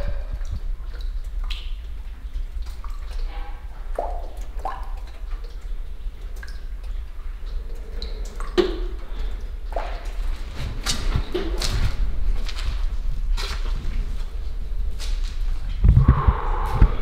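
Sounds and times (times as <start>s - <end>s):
water dripping into puddles: 0.0s - 16.1s
low rumble: 12.1s - 17.0s.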